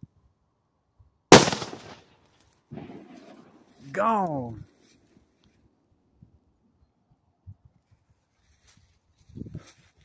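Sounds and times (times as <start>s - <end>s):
footsteps on sandy ground: 8.1s - 10.0s.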